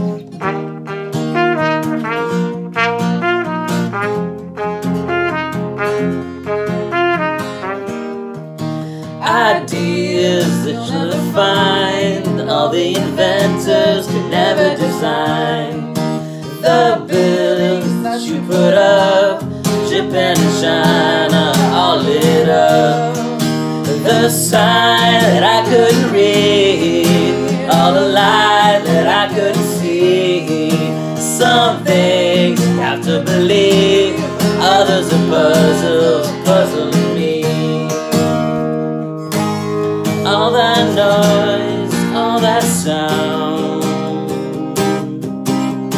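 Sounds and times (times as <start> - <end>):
strummed acoustic guitar: 0.0 - 45.9
man and woman singing: 9.0 - 38.5, 40.1 - 45.1.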